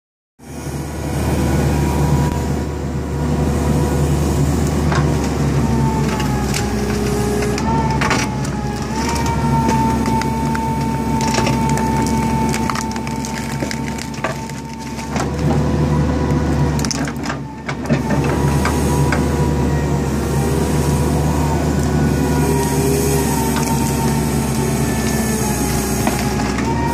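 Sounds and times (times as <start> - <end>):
excavator engine whine: 0.4 - 26.9
roots and wood cracking: 4.6 - 19.3, 21.1 - 26.9.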